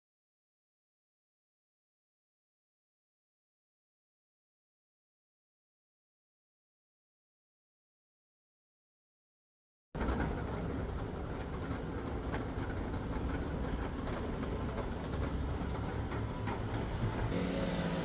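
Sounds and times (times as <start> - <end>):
trolley wheels rolling over bricks: 10.0 - 18.0.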